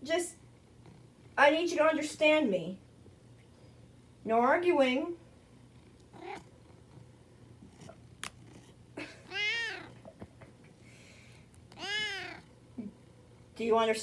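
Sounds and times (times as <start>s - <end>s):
cat meowing: 6.2s - 6.4s, 9.3s - 10.0s, 11.7s - 12.4s.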